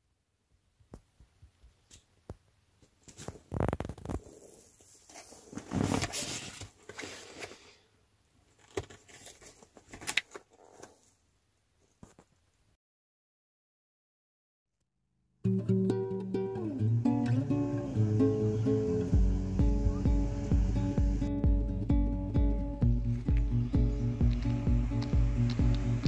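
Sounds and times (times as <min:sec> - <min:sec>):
rustling: 0:02.8 - 0:07.8, 0:08.4 - 0:12.4.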